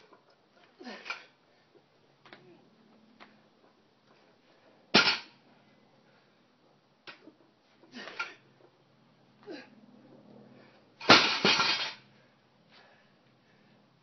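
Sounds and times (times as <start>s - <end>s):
barbell crashing onto pavement: 4.9s - 5.4s, 11.0s - 12.0s
bar and plates clanking: 11.0s - 12.0s.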